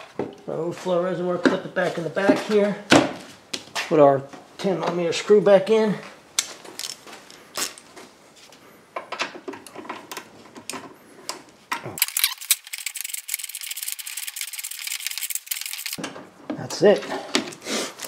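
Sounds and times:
fast ratchet clicks: 0:12.0 - 0:16.0.

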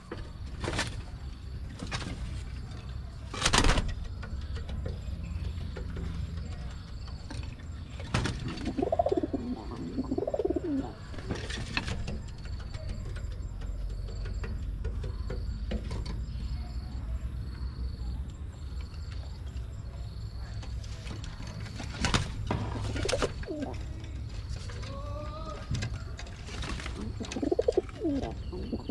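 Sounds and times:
pigeon cooing: 0:08.5 - 0:11.3, 0:22.6 - 0:24.1, 0:24.8 - 0:28.9.

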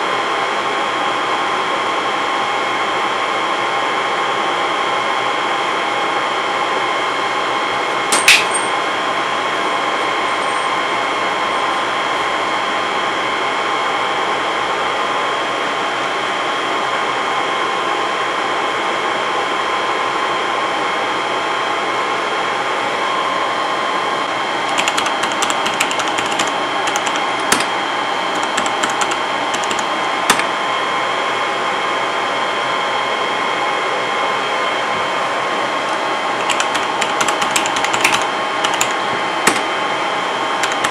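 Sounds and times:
server fans whirring: 0:00.0 - 0:40.9
keyboard clicks: 0:24.7 - 0:30.5, 0:35.9 - 0:39.7, 0:40.6 - 0:40.9
sharp click: 0:28.4 - 0:30.5, 0:39.5 - 0:39.7.

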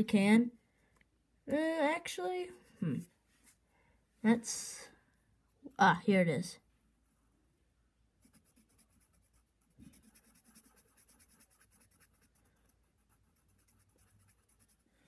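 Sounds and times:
pencil scratching on paper: 0:08.2 - 0:15.0.

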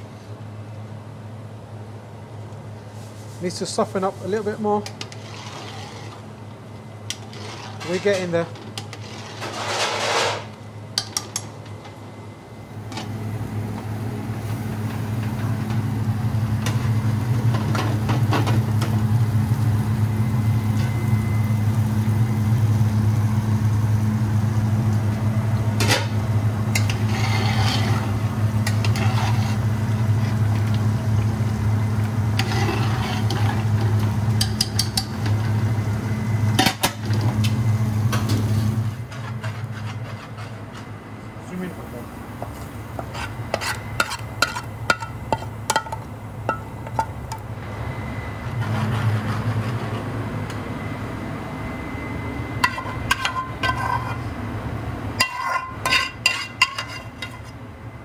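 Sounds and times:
gas burners roaring: 0:00.0 - 0:58.0
metal ladle clinking on pans: 0:55.2 - 0:57.5.

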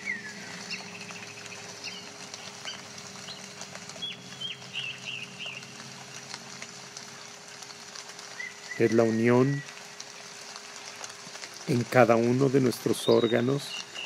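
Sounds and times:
birds chirping: 0:00.0 - 0:06.3, 0:08.2 - 0:09.8, 0:11.7 - 0:14.0
steady low hum: 0:00.0 - 0:14.0.

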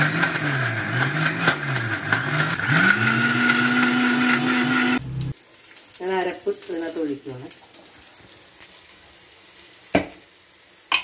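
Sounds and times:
mixer grinder whining: 0:00.0 - 0:05.3.

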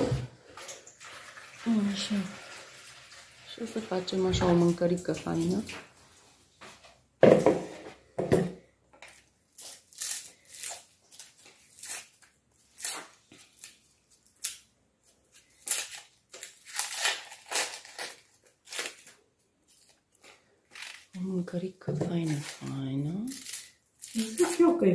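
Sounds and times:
food crunching and tearing: 0:09.0 - 0:21.2, 0:22.2 - 0:24.9.

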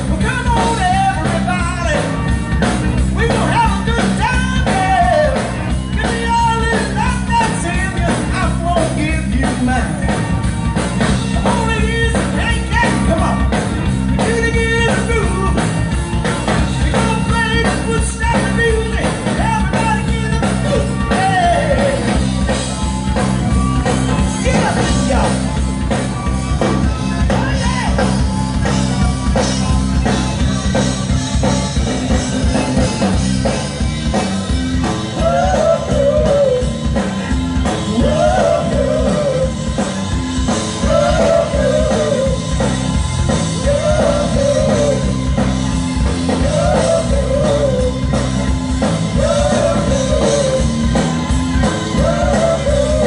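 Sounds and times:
live rock band playing: 0:00.0 - 0:53.0
lead singer singing: 0:03.1 - 0:10.3, 0:11.3 - 0:15.8, 0:16.6 - 0:22.2, 0:35.0 - 0:42.7, 0:43.3 - 0:45.5, 0:46.2 - 0:48.2, 0:49.0 - 0:53.0.

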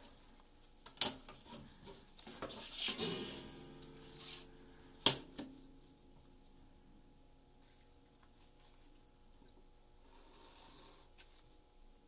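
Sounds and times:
short ringing tone: 0:03.0 - 0:06.2.

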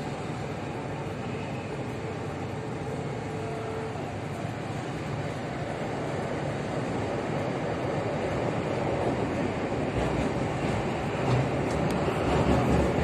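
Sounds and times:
faint whine: 0:00.0 - 0:06.7
train wheels rumbling: 0:00.0 - 0:13.0.

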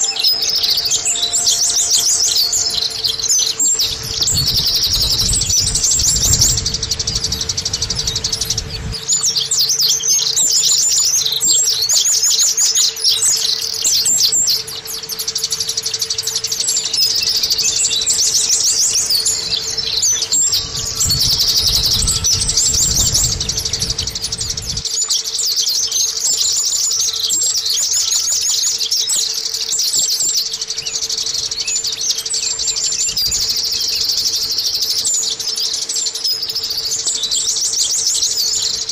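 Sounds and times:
steady low hum: 0:00.0 - 0:27.7
bird twittering trills: 0:00.0 - 0:38.9
low rumble: 0:00.4 - 0:09.7, 0:17.0 - 0:24.9.

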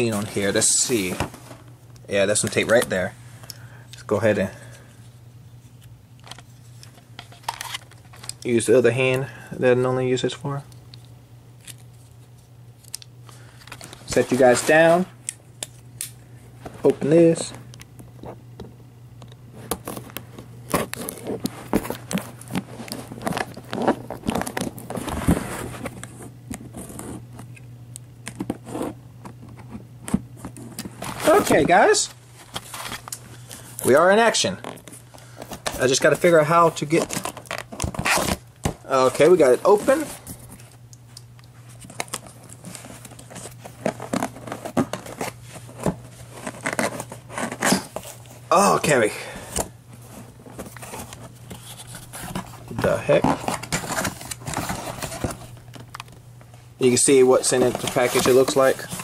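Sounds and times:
cardboard packaging crinkling: 0:20.7 - 0:26.0, 0:31.0 - 0:40.8, 0:50.4 - 0:56.2, 0:56.8 - 0:59.0
tape tearing and crinkling: 0:35.7 - 0:38.4, 0:57.4 - 0:59.0.

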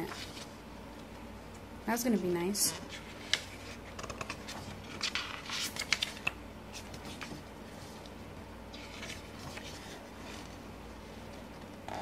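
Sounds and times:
book pages turning: 0:02.8 - 0:11.4.

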